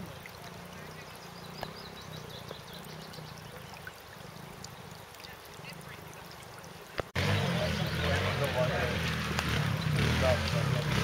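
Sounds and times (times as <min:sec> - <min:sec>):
stream trickling over rocks: 0:00.0 - 0:11.0.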